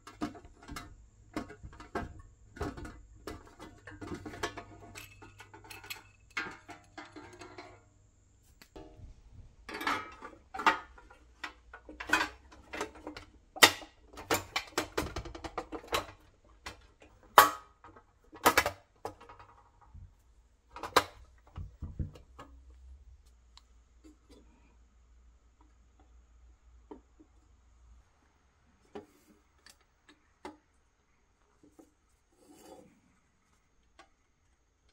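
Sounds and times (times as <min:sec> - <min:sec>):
metal toy parts clanking: 0:03.8 - 0:07.8.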